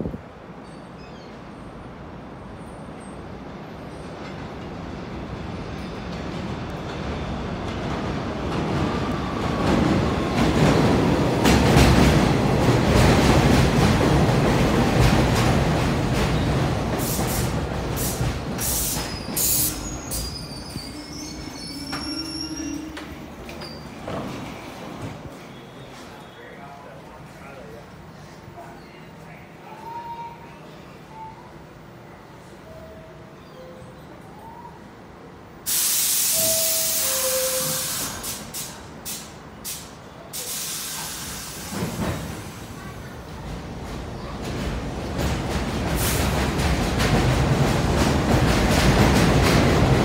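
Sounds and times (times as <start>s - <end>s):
subway train wheels rumbling: 0.0s - 50.0s
air hisses: 17.0s - 21.5s, 35.7s - 42.6s
high brake squeal: 18.6s - 24.0s, 36.0s - 38.4s
train low rumble: 40.8s - 50.0s.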